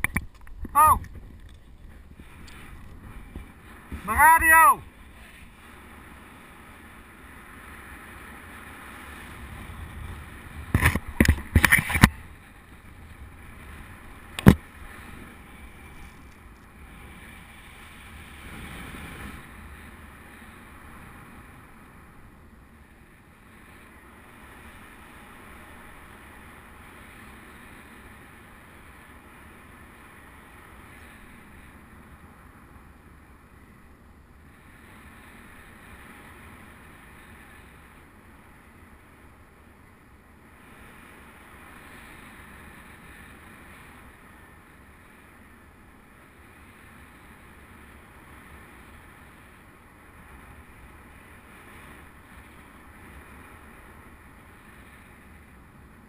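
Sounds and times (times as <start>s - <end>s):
sharp click: 0.0s - 1.6s
wind rush on microphone: 0.0s - 56.0s.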